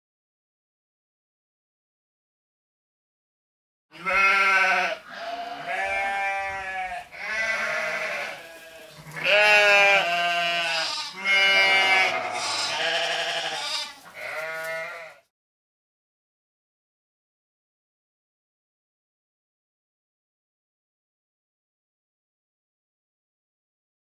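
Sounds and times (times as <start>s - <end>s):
sheep and goats bleating: 3.9s - 15.3s.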